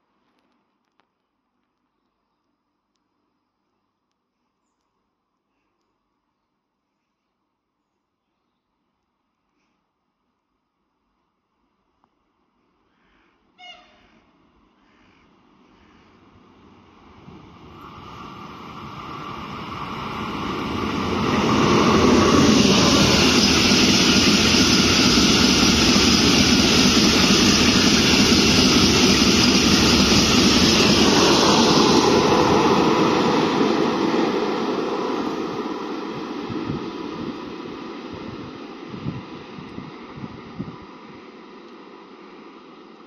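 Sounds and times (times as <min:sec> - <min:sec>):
freight train passing: 0:12.9 - 0:43.0.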